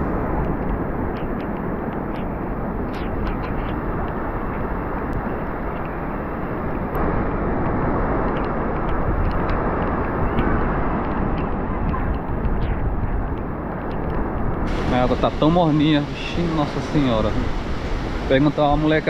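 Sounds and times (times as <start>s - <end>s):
surf crashing: 0.0s - 19.0s
wind roaring: 0.0s - 19.0s
faint clicks: 0.3s - 6.0s, 7.6s - 14.7s.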